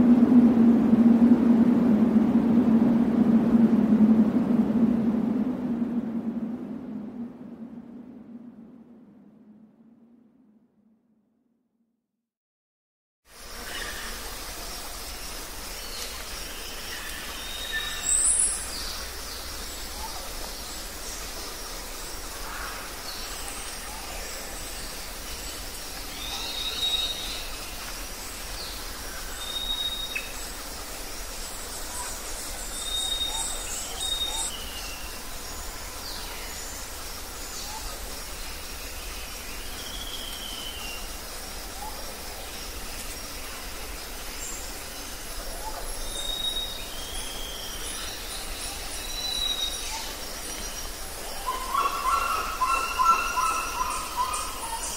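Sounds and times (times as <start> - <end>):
steady outdoor hiss: 0.0 - 9.9, 13.3 - 54.9
birds whistling calls: 51.3 - 54.9.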